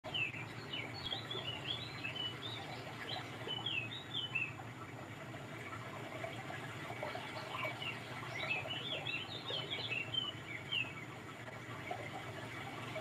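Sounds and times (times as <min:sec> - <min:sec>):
low background hum: 0:00.1 - 0:13.0
small bird chirping: 0:07.7 - 0:11.0.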